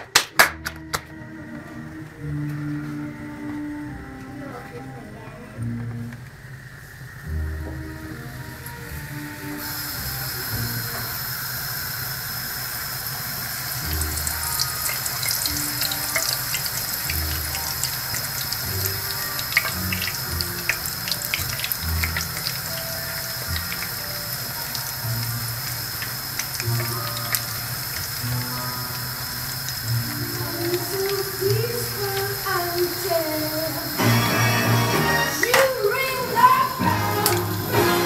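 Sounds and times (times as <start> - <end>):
bread deep-frying in oil: 8.7 - 35.4
oil crackling and popping: 13.8 - 34.3.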